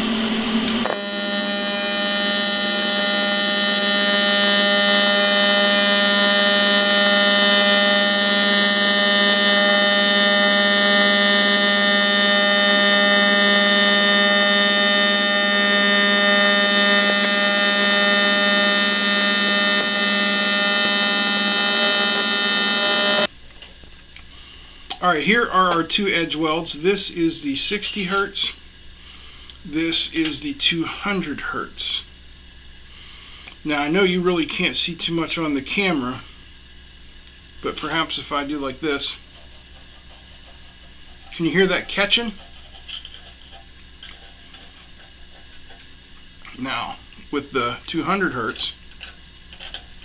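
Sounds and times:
welding arc buzzing: 0.0s - 23.4s.

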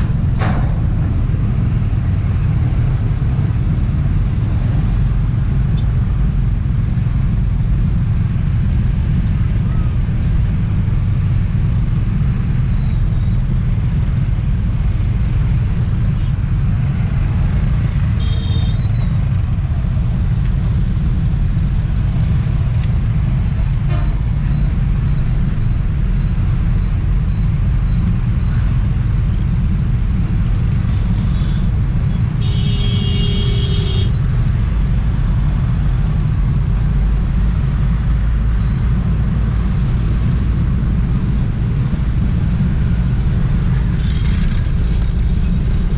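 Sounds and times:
wind rumble: 0.0s - 18.2s
vehicle horn tooting: 18.2s - 18.9s, 32.4s - 34.2s.

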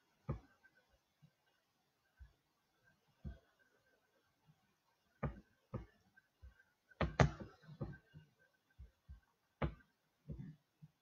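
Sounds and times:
knocks and thuds: 5.2s - 8.1s, 8.8s - 10.6s.

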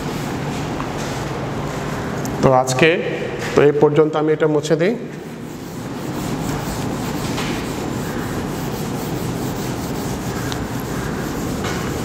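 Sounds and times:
eraser scrubbing whiteboard: 5.2s - 12.0s.

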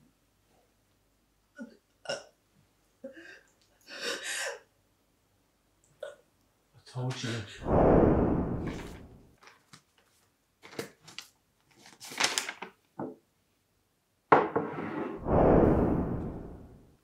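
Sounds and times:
loud rush of noise: 7.6s - 9.2s, 15.2s - 16.9s
paper rustling: 9.4s - 12.8s.

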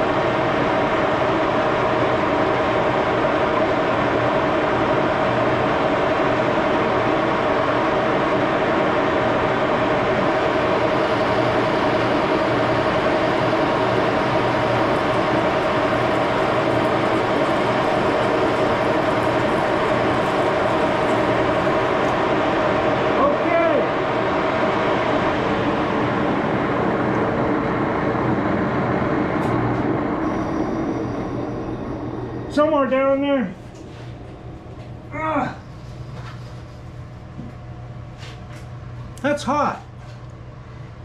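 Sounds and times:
lathe running: 0.0s - 37.0s.

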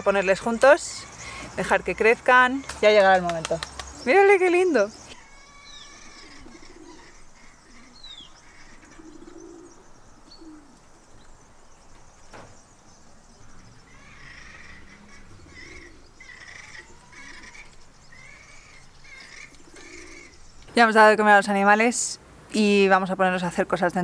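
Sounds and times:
bird chirps: 0.0s - 21.0s
bird cooing: 5.2s - 11.2s, 13.5s - 20.4s.

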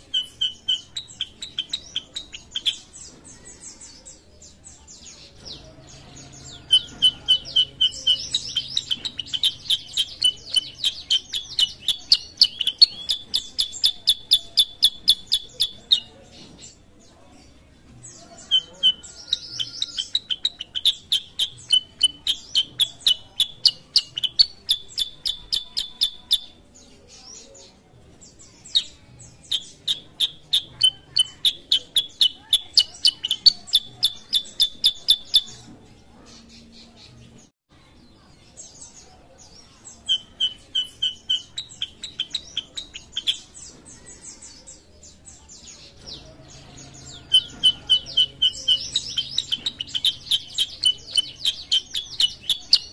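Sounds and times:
bird singing sharp chirps: 38.8s - 52.9s.

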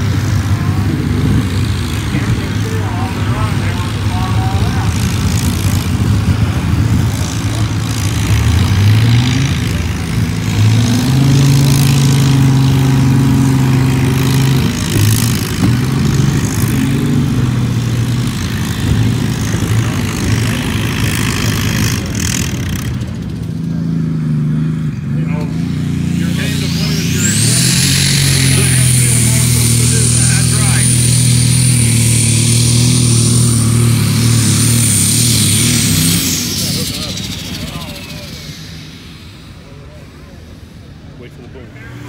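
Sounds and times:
tractor engine under load: 0.0s - 41.9s
high-pitched noise: 25.4s - 41.2s.

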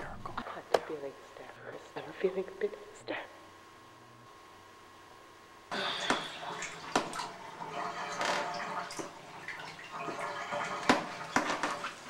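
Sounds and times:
water sloshing in bathtub: 5.7s - 12.0s.

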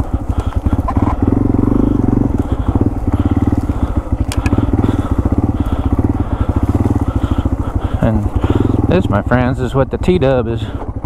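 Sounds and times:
motorcycle engine at low speed: 0.0s - 11.0s
sharp clicks: 3.6s - 4.8s.

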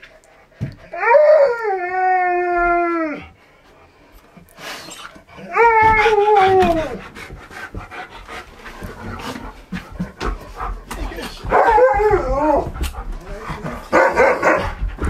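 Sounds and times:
husky howling: 0.9s - 3.3s, 5.4s - 7.1s, 11.1s - 14.8s.

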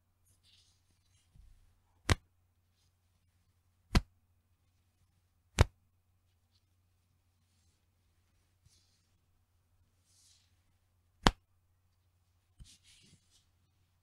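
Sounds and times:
elastic band snapping: 2.0s - 2.2s, 3.9s - 4.1s, 5.5s - 5.8s, 11.2s - 11.4s.

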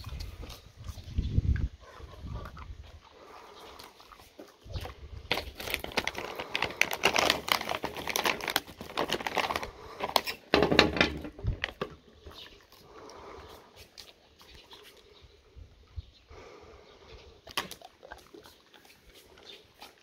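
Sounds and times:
plastic pouch crinkling: 4.8s - 10.8s.

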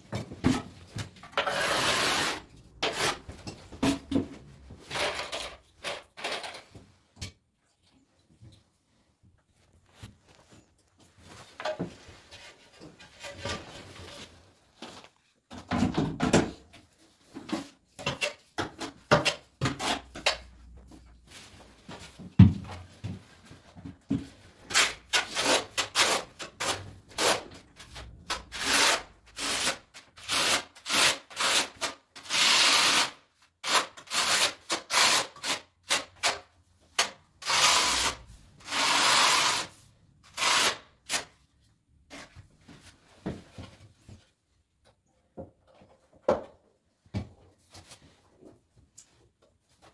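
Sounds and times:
trowel scraping adhesive on tile: 1.4s - 3.3s, 24.6s - 41.4s.

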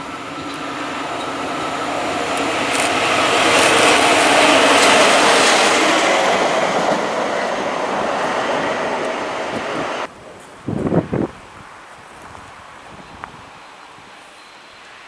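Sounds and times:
train wheels rolling on rails: 0.0s - 11.2s.

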